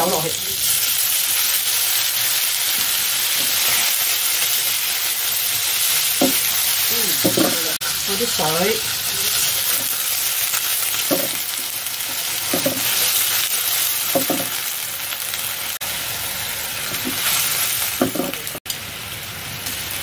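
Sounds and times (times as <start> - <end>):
fish sizzling in a wok: 0.0 - 20.0.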